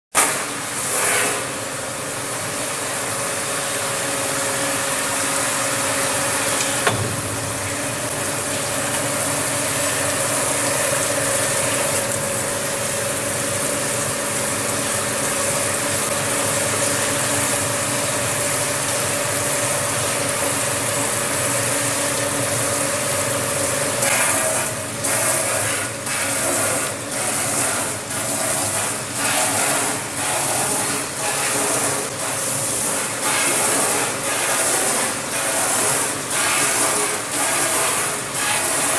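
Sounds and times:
motor hum: 0:05.0 - 0:24.1.

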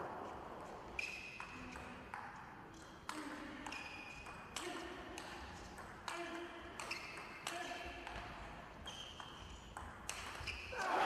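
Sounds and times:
table tennis ball hits: 0:09.2 - 0:10.5.

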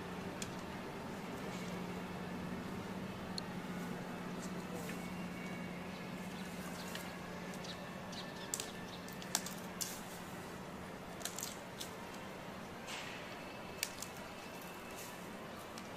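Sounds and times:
low background hum: 0:00.0 - 0:15.9.

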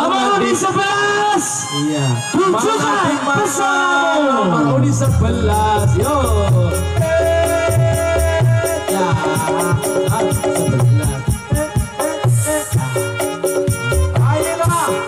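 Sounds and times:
melody with sliding notes: 0:04.7 - 0:15.0
low bass line: 0:04.8 - 0:09.4
fast ticking beat: 0:05.0 - 0:15.0.

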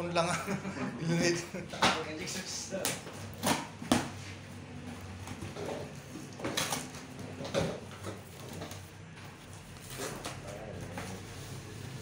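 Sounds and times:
cardboard scraping: 0:05.3 - 0:12.0.

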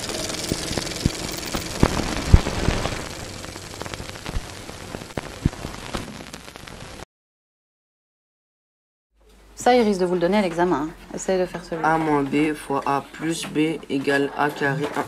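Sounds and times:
crackling static hiss: 0:00.0 - 0:07.1
pops and clicks: 0:03.8 - 0:06.8.

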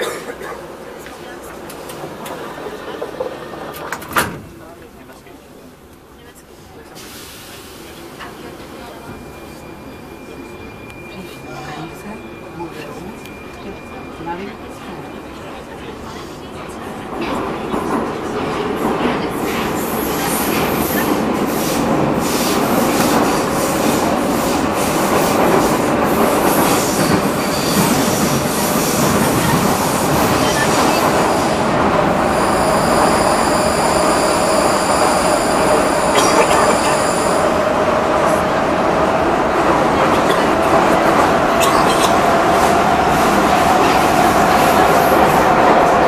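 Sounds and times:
train wheels rumbling on rails: 0:12.9 - 0:46.0.

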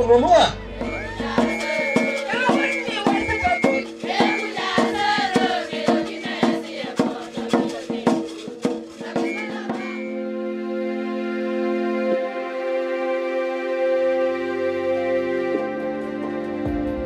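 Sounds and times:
frame drum struck with stick: 0:00.8 - 0:10.0
women singing together: 0:00.8 - 0:10.2
soft background music: 0:10.1 - 0:17.0.

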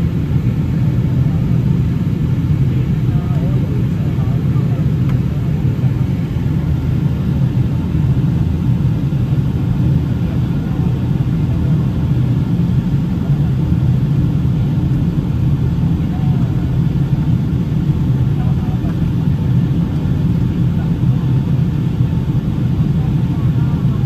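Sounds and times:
airplane cabin rumble: 0:00.0 - 0:24.0.

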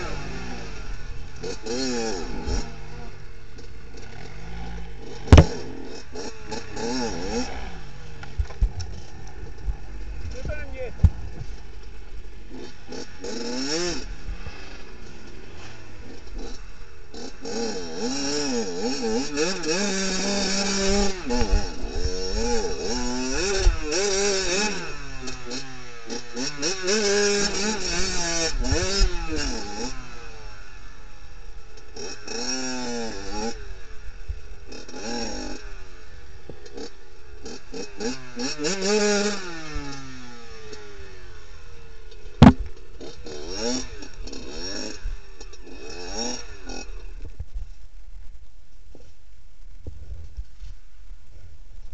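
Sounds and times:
motorcycle engine revving: 0:00.0 - 0:47.9
sharp knock: 0:42.4 - 0:42.6.

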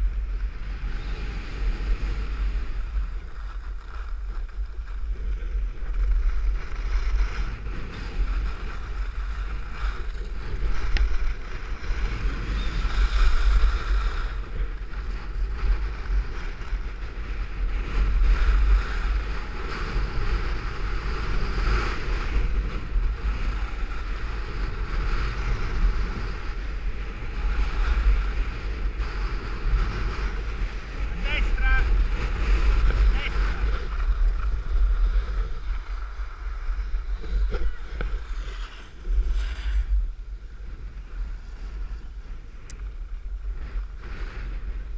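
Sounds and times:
skis scraping on packed snow: 0:00.0 - 0:44.9
wind buffeting microphone: 0:00.0 - 0:44.9.

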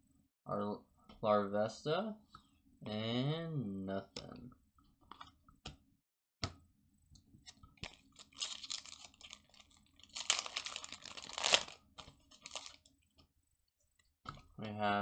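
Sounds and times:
foil wrapper crinkling and tearing: 0:07.8 - 0:12.9.

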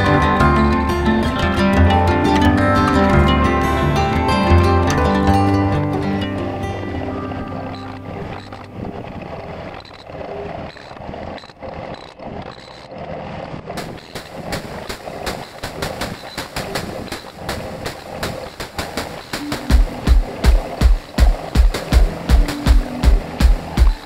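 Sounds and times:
excavator engine running: 0:00.0 - 0:24.0
excavator arm against brickwork: 0:07.7 - 0:24.0
rapid sharp clicks and knocks: 0:13.6 - 0:24.0.

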